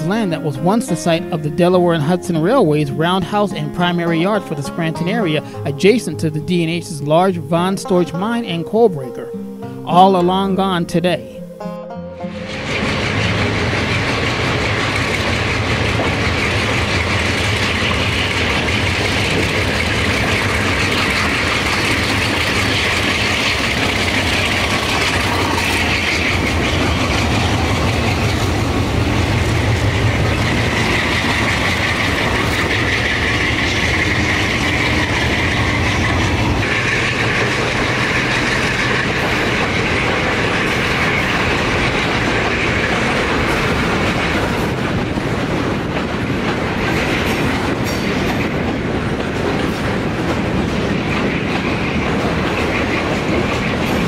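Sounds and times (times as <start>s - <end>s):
diesel locomotive engines droning: 0.0s - 54.0s
train wheels clicking over rail joints: 12.3s - 54.0s.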